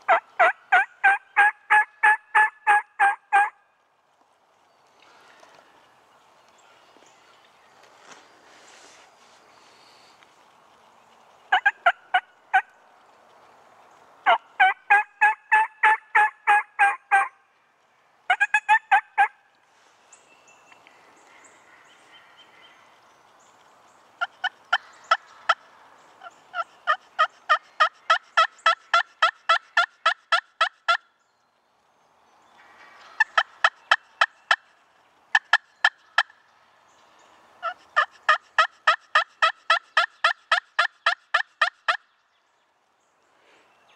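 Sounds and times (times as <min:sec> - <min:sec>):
turkey yelping: 0:00.1 - 0:03.6, 0:11.5 - 0:12.6, 0:14.2 - 0:17.3, 0:18.3 - 0:19.3.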